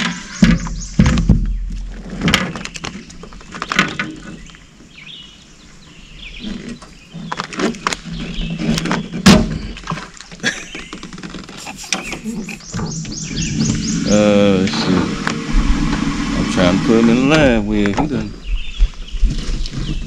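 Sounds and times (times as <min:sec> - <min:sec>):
low rumble: 0:12.6 - 0:19.2.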